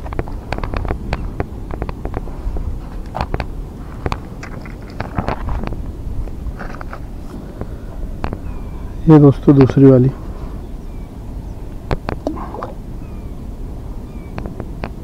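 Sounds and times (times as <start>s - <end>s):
fishing line clicks and rustles: 0.0s - 8.4s
wind on microphone: 0.0s - 15.0s.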